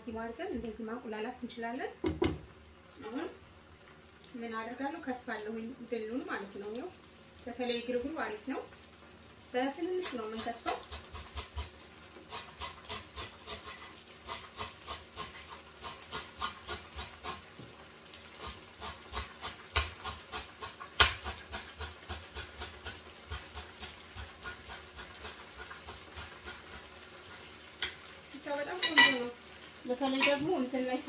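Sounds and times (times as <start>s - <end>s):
knife chopping on cutting board: 18.8s - 26.6s.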